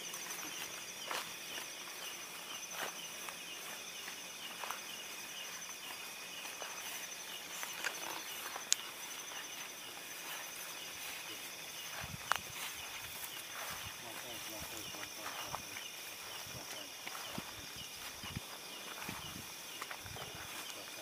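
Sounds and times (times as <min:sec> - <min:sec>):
crickets chirping: 0:00.0 - 0:21.0.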